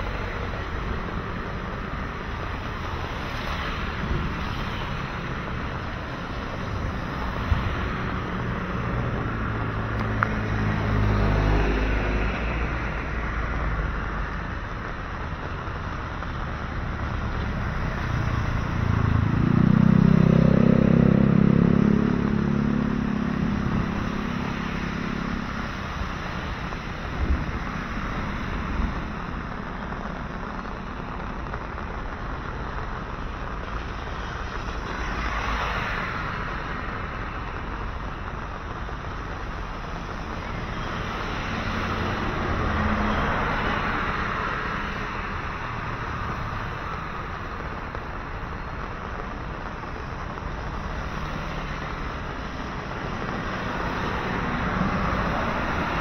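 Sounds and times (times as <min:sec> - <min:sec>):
tyres hissing on wet road: 0:00.0 - 0:56.0
vehicle engine passing close: 0:17.6 - 0:25.8.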